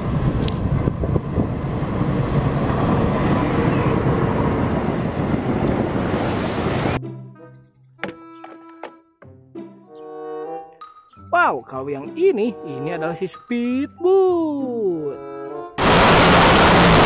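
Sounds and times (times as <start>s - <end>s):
train rumble: 0.0s - 7.0s
wind on microphone: 0.0s - 7.0s
rushing spraying water: 1.0s - 7.0s, 15.8s - 17.0s.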